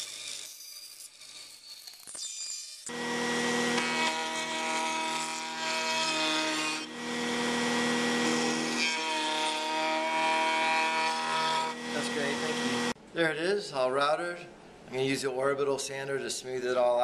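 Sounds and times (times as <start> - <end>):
router cutting wood: 2.9 - 13.0.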